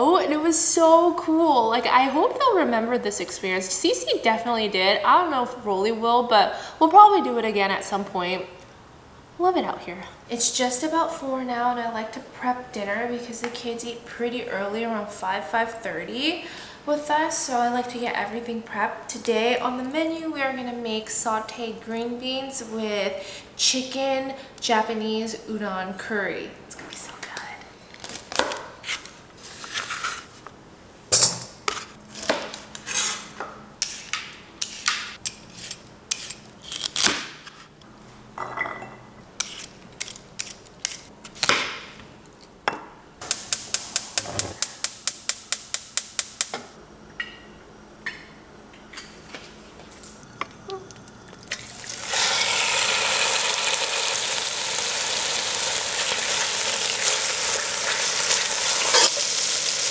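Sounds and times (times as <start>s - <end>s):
chicken sizzling in a pot: 51.4s - 59.9s.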